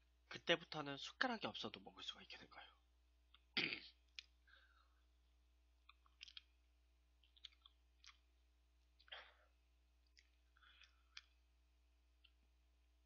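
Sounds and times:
low steady hum: 0.0 - 13.0
mouth clicks and lip smacks: 3.3 - 4.4, 5.8 - 9.2, 10.0 - 11.5.

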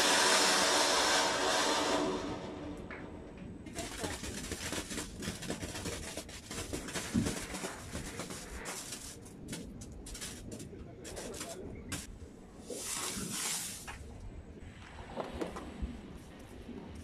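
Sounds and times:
firework hissing: 0.0 - 2.7, 12.7 - 14.0
firework crackling: 3.6 - 12.1, 12.7 - 14.1.

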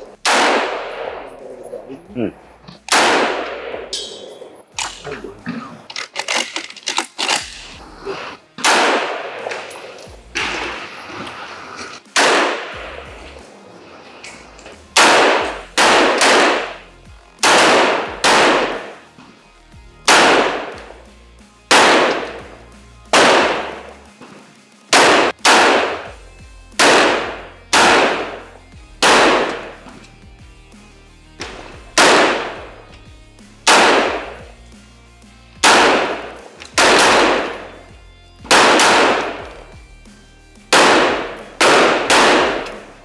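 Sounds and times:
rifle shots: 0.0 - 1.8, 2.8 - 5.0, 8.6 - 11.2, 12.0 - 13.6, 14.9 - 19.1, 20.0 - 21.0, 21.7 - 24.1, 24.9 - 30.0, 31.4 - 32.9, 33.6 - 34.6, 35.6 - 39.8, 40.7 - 43.0.

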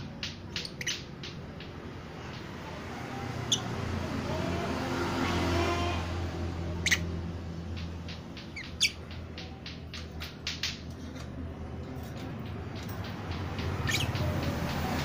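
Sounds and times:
lovebirds chirping: 0.5 - 4.2, 6.6 - 10.1, 12.2 - 15.0.

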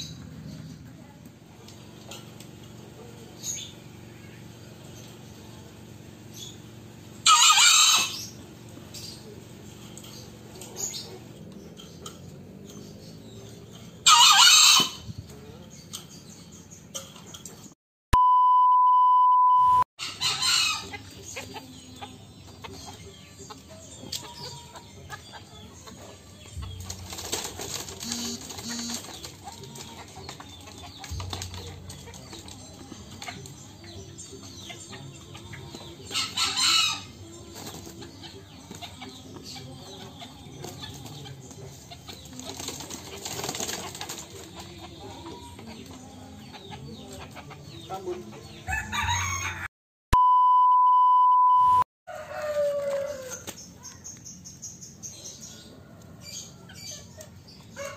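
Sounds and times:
chicken calls: 7.2 - 8.4, 14.0 - 15.4, 20.0 - 49.7
electronic beep tone: 18.1 - 19.9, 50.1 - 51.9
wing flapping: 26.7 - 32.0.

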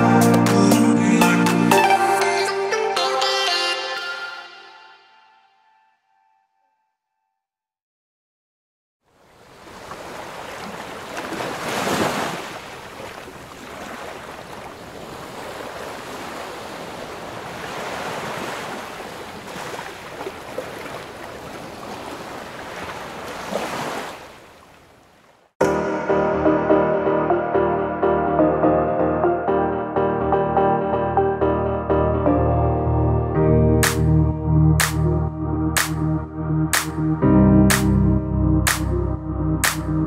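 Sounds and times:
ocean surf washing in: 9.4 - 20.0
wave breaking: 9.4 - 24.5.

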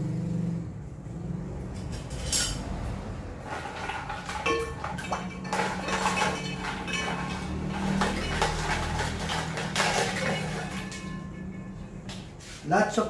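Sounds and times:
ice cubes clinking in glass bowl: 3.4 - 11.9.

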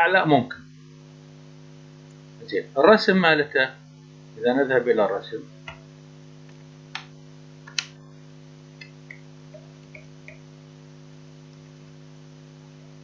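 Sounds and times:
electrical mains hum: 0.0 - 13.0
sharp click: 6.9 - 8.0.

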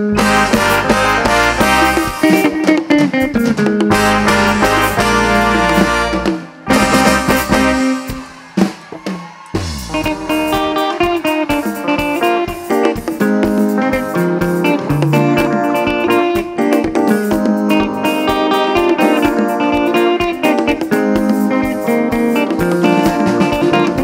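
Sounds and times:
electric guitar: 0.0 - 24.0
live band playing: 0.0 - 24.0.

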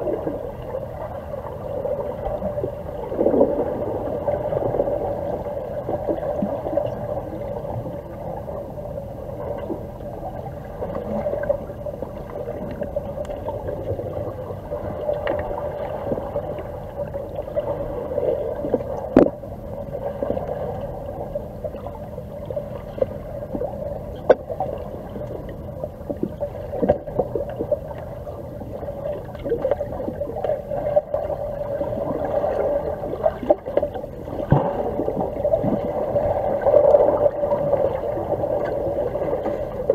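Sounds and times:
underwater low hum: 0.0 - 39.9
underwater clicks and knocks: 19.0 - 19.4.

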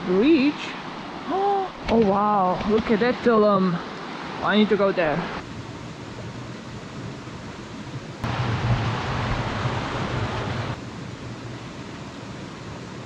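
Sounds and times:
river water rushing over rocks: 8.2 - 10.8.

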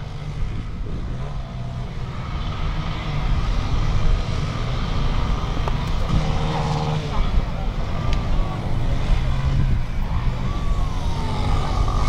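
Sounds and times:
motorcycle engines blipping: 0.0 - 12.0.

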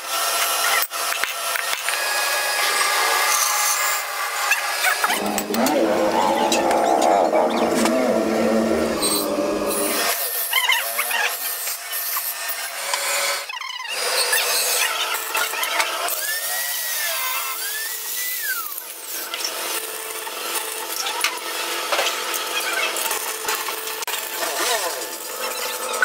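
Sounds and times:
steel on grinding wheel: 1.9 - 13.0.

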